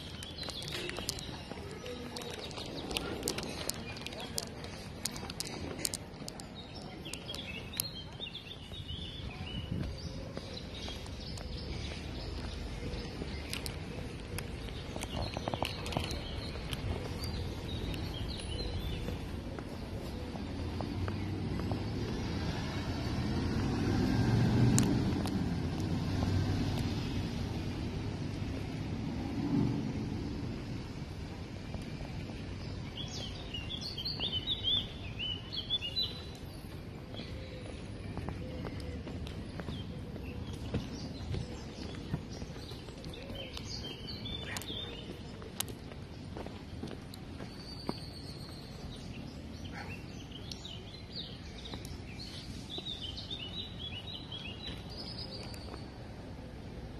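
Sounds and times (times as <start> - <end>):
bus engine rumbling: 0.0 - 45.4
small birds chirping: 0.0 - 56.9.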